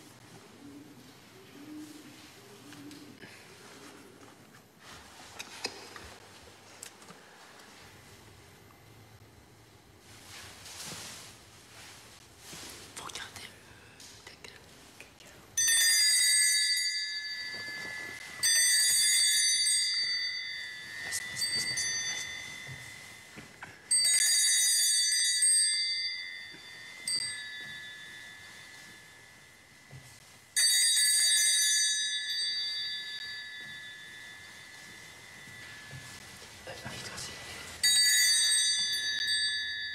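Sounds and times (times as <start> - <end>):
small bell ringing: 15.6 - 36.7, 37.6 - 39.9.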